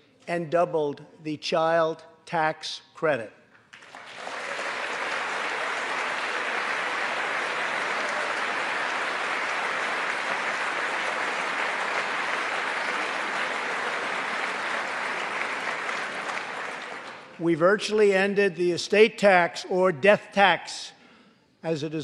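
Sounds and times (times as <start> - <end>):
crowd applause: 3.8 - 17.4.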